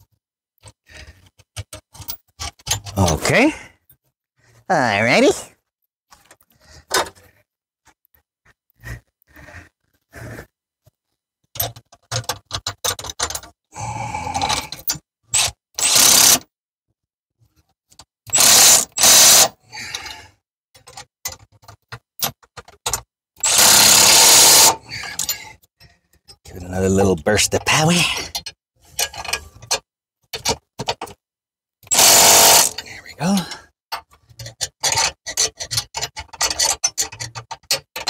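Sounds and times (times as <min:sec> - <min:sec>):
tool clatter: 0:00.6 - 0:03.4, 0:11.5 - 0:13.6, 0:27.4 - 0:31.2, 0:33.9 - 0:38.0
cordless power tool running bolts: 0:14.8 - 0:16.4, 0:18.3 - 0:20.0, 0:23.4 - 0:25.4, 0:31.8 - 0:32.9.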